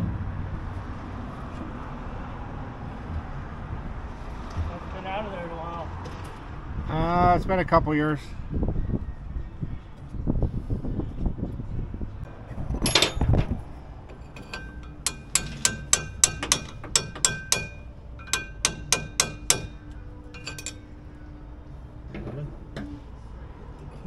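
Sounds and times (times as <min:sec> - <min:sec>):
metal clatter: 0:12.5 - 0:21.0
hammer striking steel: 0:12.8 - 0:20.8.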